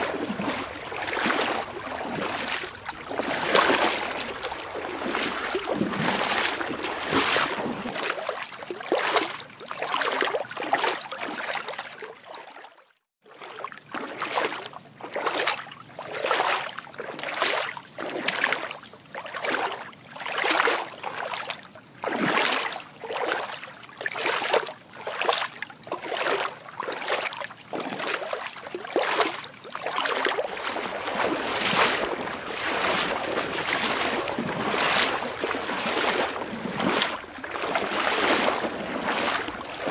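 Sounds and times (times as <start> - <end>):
water sloshing: 0.0 - 12.6, 13.3 - 39.9.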